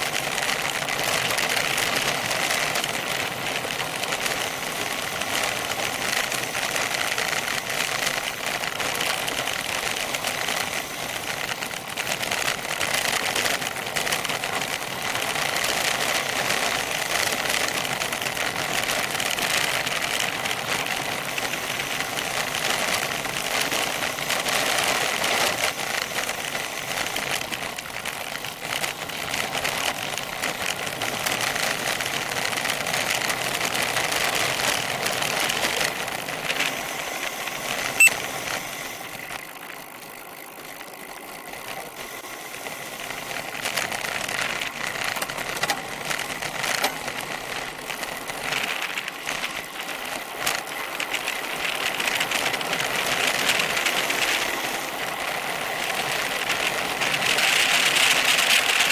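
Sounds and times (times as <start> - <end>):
bicycle rattling and clicking: 0.0 - 58.9
bicycle tyres crunching gravel: 0.0 - 58.9.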